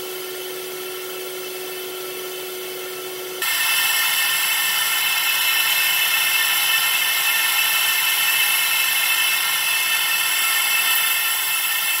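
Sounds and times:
laser engraver hissing and whining: 0:03.4 - 0:12.0.

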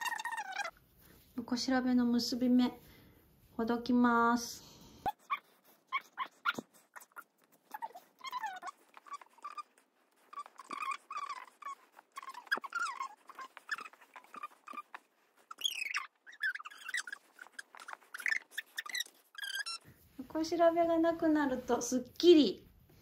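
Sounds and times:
rope squeaking against rope: 0:00.0 - 0:00.7, 0:05.1 - 0:19.9.

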